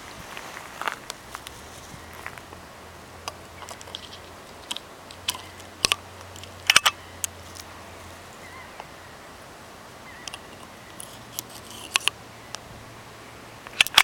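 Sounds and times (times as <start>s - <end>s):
metallic clicks of shells loading: 3.6s - 7.7s.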